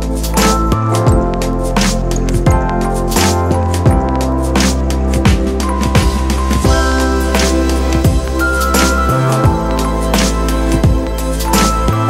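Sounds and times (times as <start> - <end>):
background music with bass: 0.0 - 12.0
kick drum thumps: 5.2 - 6.8, 8.1 - 8.3, 10.8 - 11.1.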